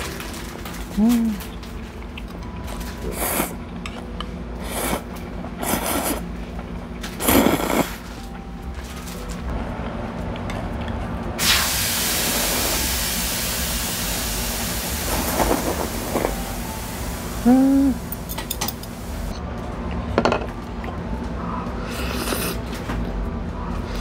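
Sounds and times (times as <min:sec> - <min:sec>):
person humming: 0:00.9 - 0:01.5, 0:17.2 - 0:18.2
steady rushing hiss: 0:11.4 - 0:19.3.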